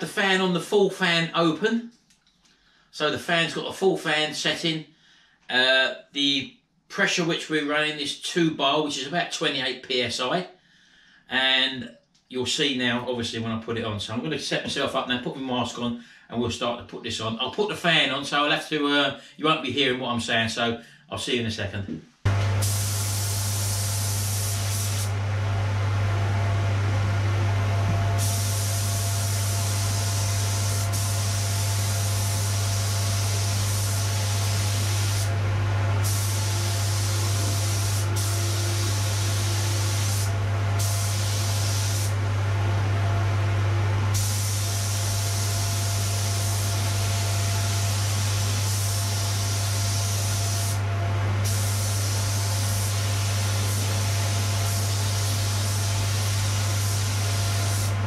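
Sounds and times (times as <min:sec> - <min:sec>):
extractor fan humming: 0:22.3 - 0:58.0
spray gun hissing: 0:22.6 - 0:25.2, 0:28.1 - 0:42.2, 0:44.1 - 0:50.8, 0:51.4 - 0:58.0.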